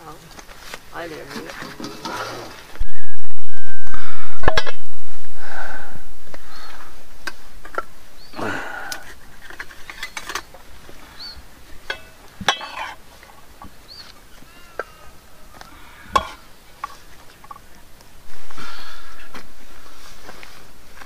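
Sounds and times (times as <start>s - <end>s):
bird chirping: 6.4s - 7.1s, 8.0s - 8.5s, 9.7s - 12.2s, 13.6s - 17.7s
steel plates and spoons clinking: 11.8s - 13.0s.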